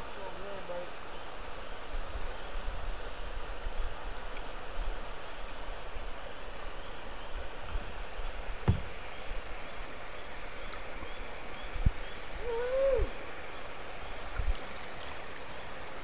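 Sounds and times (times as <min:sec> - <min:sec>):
water lapping and trickling: 0:03.4 - 0:16.0
low knocks: 0:08.6 - 0:09.0.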